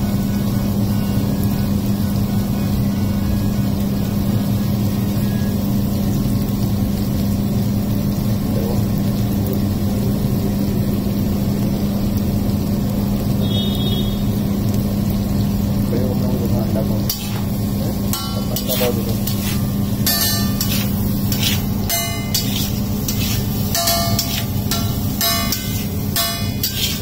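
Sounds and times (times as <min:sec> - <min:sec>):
machinery droning: 0:08.6 - 0:27.0.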